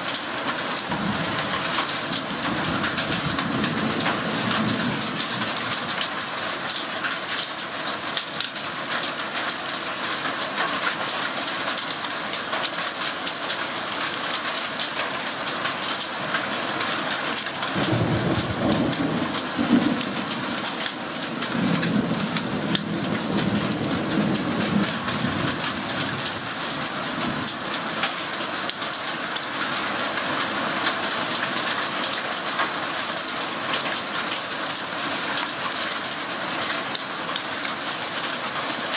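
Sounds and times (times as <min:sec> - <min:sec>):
heavy rain pouring: 0:00.0 - 0:38.9
thunder rumbling: 0:17.8 - 0:26.6.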